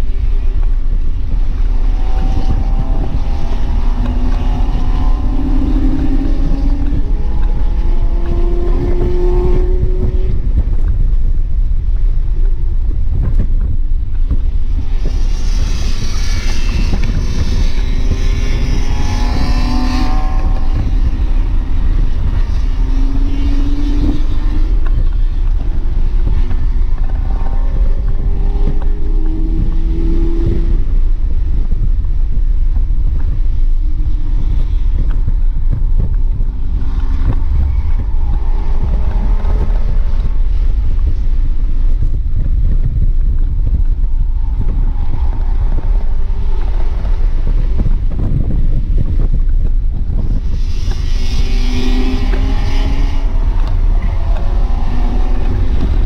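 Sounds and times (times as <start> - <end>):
car engine at high revs: 0.0 - 56.0
road and wind noise rumble: 0.0 - 56.0.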